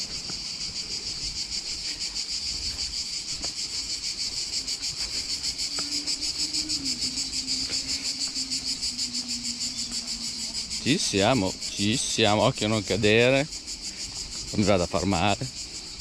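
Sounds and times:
footsteps on dirt path: 0.0s - 11.6s
cicadas chorus: 0.0s - 16.0s.

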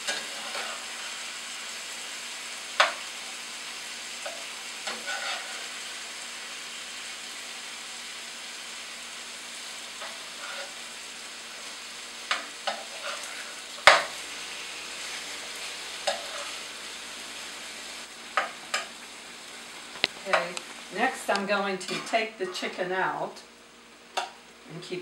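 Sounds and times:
chicken sizzling in oil: 0.0s - 21.4s.

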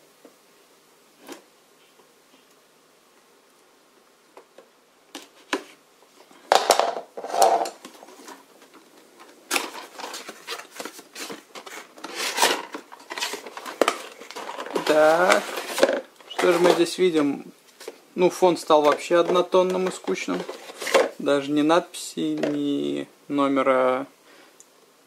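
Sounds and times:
cardboard scraping and crinkling: 9.2s - 21.2s
cardboard box sliding: 9.6s - 16.9s.

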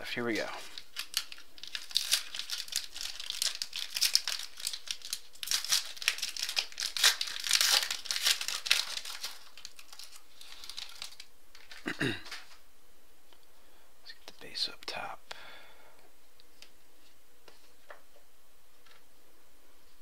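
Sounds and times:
card pack wrapper tearing and crinkling: 0.6s - 12.5s.

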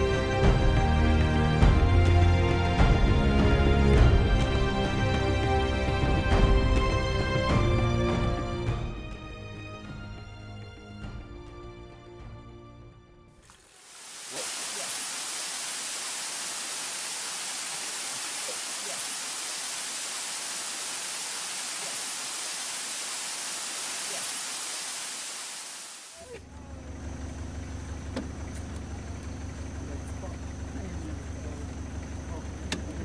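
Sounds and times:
stream rushing over rocks: 13.4s - 26.2s.

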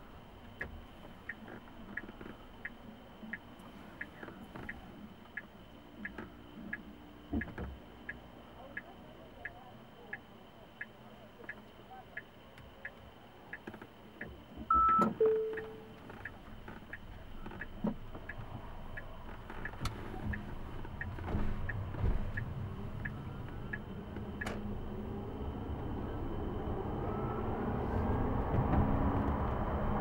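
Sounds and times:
turn-signal indicator ticking: 12.2s - 24.5s
tyre and road noise: 15.7s - 30.0s
rising whine: 21.7s - 30.0s.

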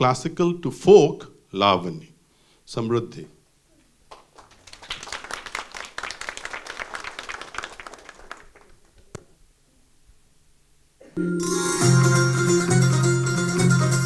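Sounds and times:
audience applauding: 4.1s - 9.2s.

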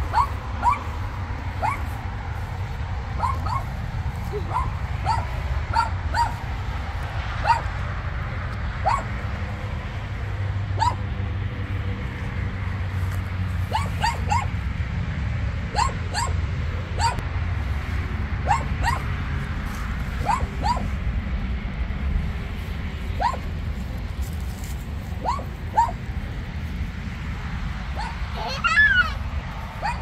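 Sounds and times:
steady low rumble: 0.0s - 30.0s
small dog yipping: 0.1s - 0.9s, 1.6s - 1.8s, 3.2s - 6.4s, 7.4s - 7.7s, 8.8s - 9.1s, 10.8s - 11.0s, 13.7s - 14.5s, 15.8s - 16.4s, 17.0s - 17.2s, 18.5s - 19.1s, 20.2s - 20.9s, 23.2s - 23.4s, 25.2s - 26.0s, 28.0s - 29.2s, 29.8s - 30.0s.

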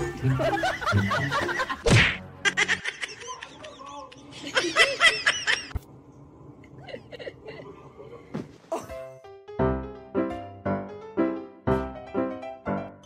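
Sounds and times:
person laughing: 0.2s - 1.8s, 2.4s - 5.8s.

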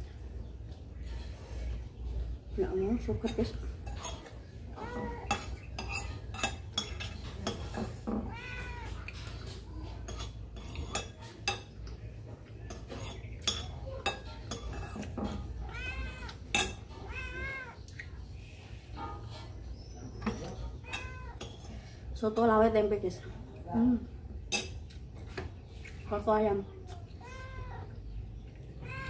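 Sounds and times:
cat meowing: 8.2s - 9.1s, 15.6s - 16.4s, 17.0s - 17.8s, 20.8s - 21.4s, 27.2s - 28.0s, 28.8s - 29.0s.

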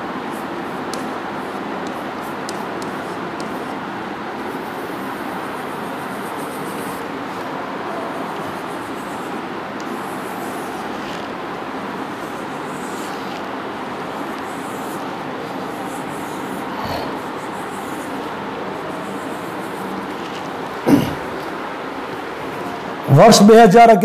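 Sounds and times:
steady background noise: 0.0s - 24.0s
chalk tapping on blackboard: 0.3s - 3.8s, 8.1s - 20.6s.

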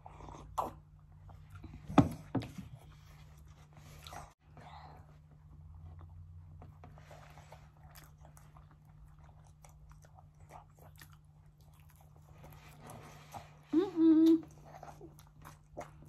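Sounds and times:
chewing and biting pizza: 7.4s - 13.6s, 14.5s - 16.0s.

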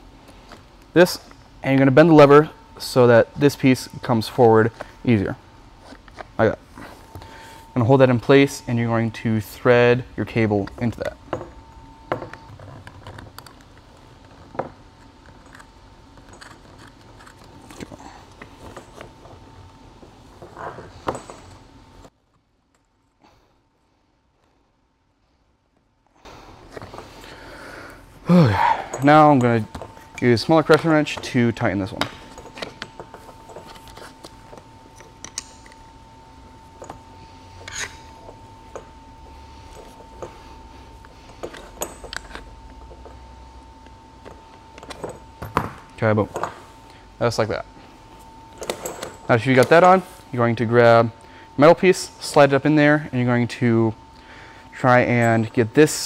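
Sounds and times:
faint steady hum: 0.0s - 56.0s
wrench scrape: 37.5s - 38.4s.

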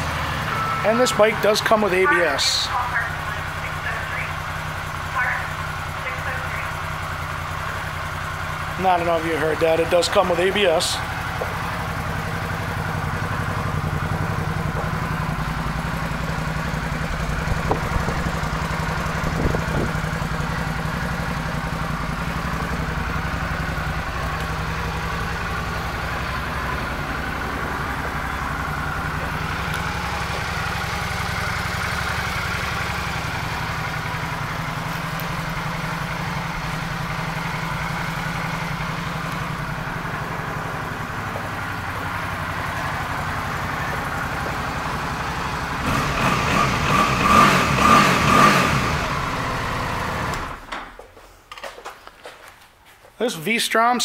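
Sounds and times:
motorcycle engine idling: 0.0s - 51.0s
light engine knocks: 17.6s - 18.4s.

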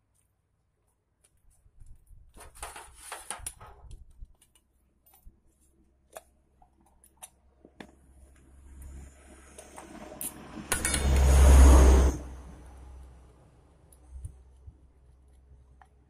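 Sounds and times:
metal scraping and rustling: 2.3s - 3.9s.

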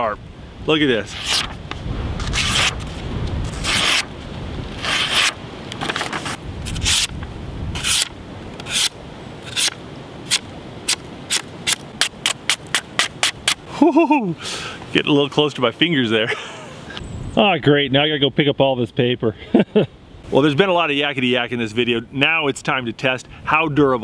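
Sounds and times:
knife slicing through paper: 1.1s - 1.6s, 2.2s - 4.1s, 4.8s - 7.1s, 7.8s - 8.9s, 9.5s - 13.4s.

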